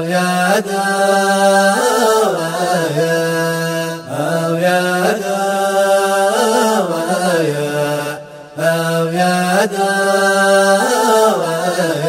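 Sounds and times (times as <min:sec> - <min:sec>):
man singing a chant: 0:00.0 - 0:12.0.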